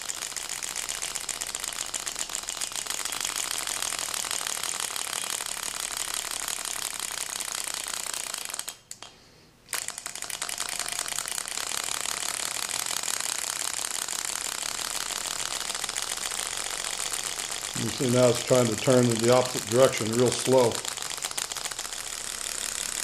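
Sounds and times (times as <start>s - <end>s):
engine clicking rapidly: 11.4s - 23.0s.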